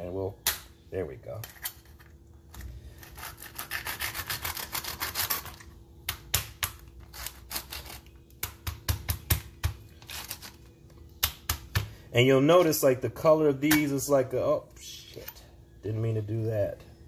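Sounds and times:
knife sawing through shell: 3.0 - 5.5.

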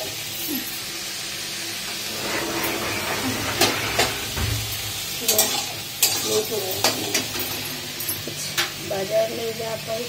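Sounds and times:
pan hissing on gas stove: 0.0 - 10.0.

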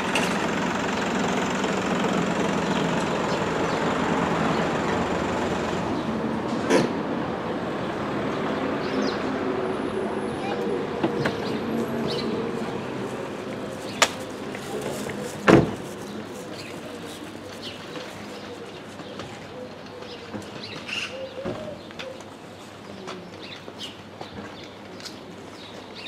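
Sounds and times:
birds chirping: 7.8 - 26.0
background murmur: 9.2 - 25.9
thump: 15.4 - 15.8.

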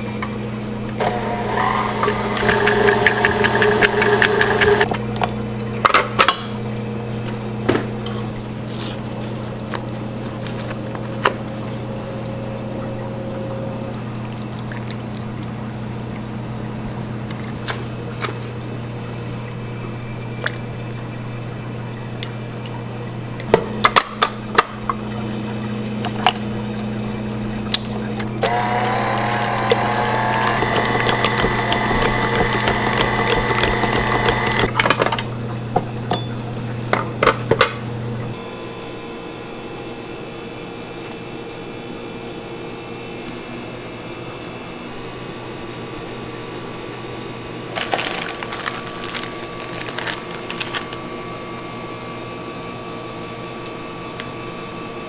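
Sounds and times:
stand mixer whining: 0.8 - 4.9, 28.4 - 34.7.

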